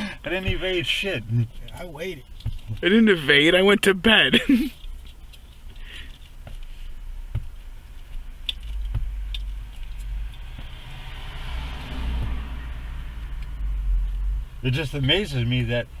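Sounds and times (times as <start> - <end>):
vehicle engine idling: 0.0 - 16.0
passing traffic hiss: 9.6 - 15.7.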